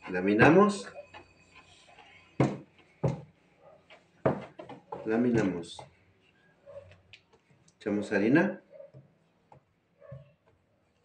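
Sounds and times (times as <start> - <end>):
rolling pin knocking on table: 2.4 - 3.3, 4.2 - 5.9.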